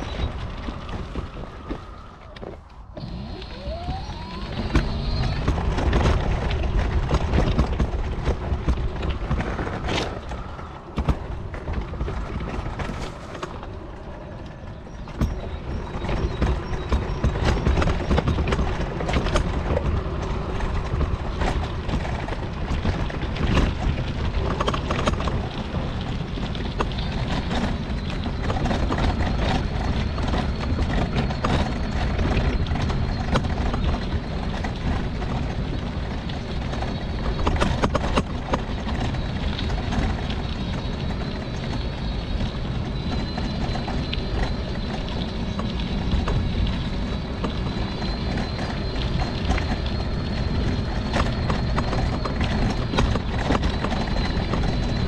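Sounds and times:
electric motor whine: 0:00.0 - 0:07.4.

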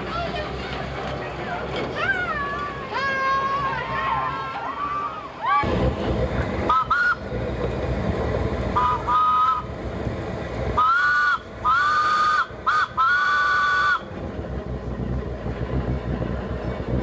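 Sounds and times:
train running rumble: 0:00.0 - 0:04.7, 0:05.3 - 0:17.0
steam whistle: 0:06.7 - 0:07.2, 0:08.8 - 0:09.7, 0:10.8 - 0:14.0.

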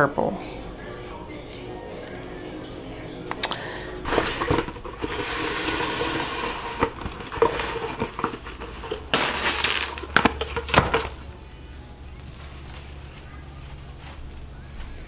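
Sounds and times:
plastic wrap crinkling: 0:04.1 - 0:15.0.

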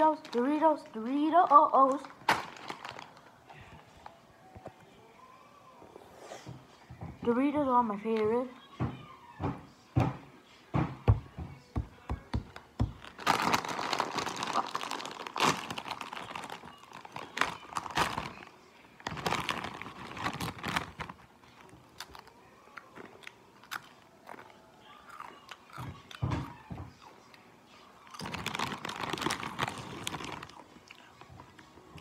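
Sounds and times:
foil bag crinkling: 0:00.1 - 0:03.4, 0:12.9 - 0:22.3, 0:28.2 - 0:30.8.

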